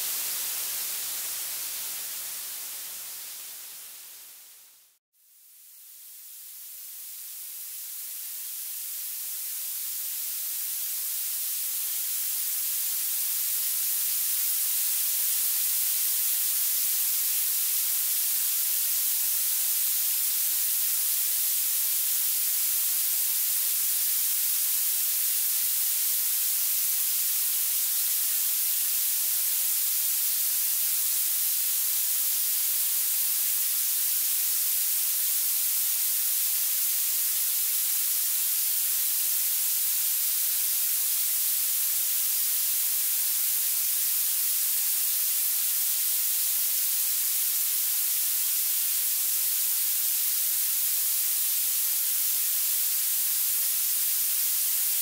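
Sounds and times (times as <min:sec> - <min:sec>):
high-pitched steady hiss: 0:00.0 - 0:55.0.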